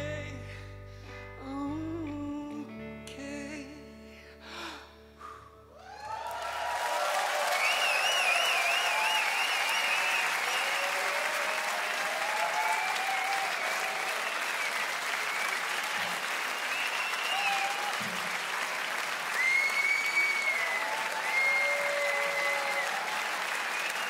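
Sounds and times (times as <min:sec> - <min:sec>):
audience applauding: 0:05.8 - 0:24.0
whistles: 0:07.4 - 0:11.4, 0:13.1 - 0:18.0, 0:19.3 - 0:24.0.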